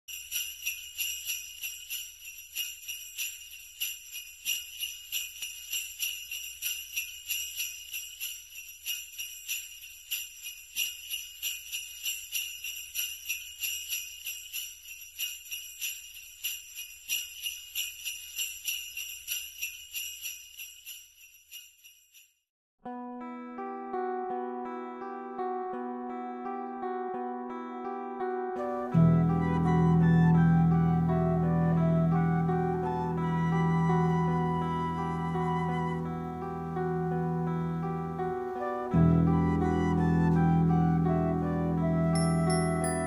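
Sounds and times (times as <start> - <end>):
jingle bells shaken: 0.1 - 22.4, 42.1 - 43.0.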